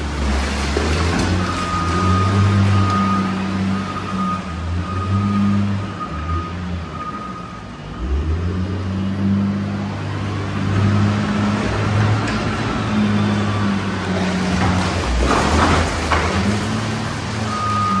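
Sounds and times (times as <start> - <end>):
diesel engine revving: 0.0 - 18.0
reverse alarm beeping: 1.4 - 7.7, 17.5 - 18.0.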